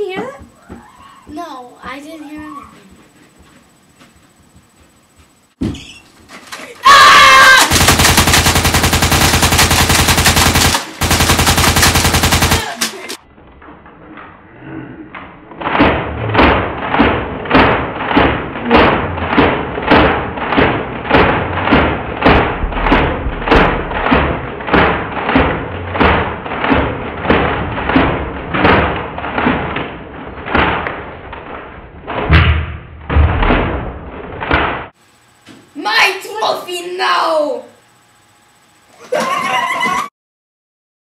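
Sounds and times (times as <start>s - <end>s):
thumping beat: 22.2s - 24.4s
heavy deep hits: 22.2s - 24.5s.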